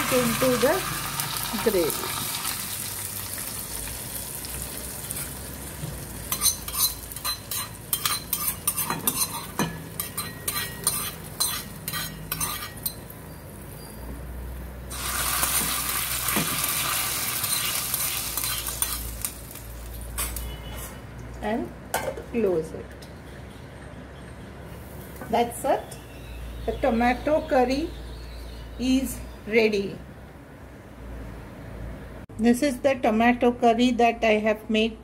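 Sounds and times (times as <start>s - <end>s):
oil sizzling: 0.0s - 13.8s, 14.9s - 20.4s.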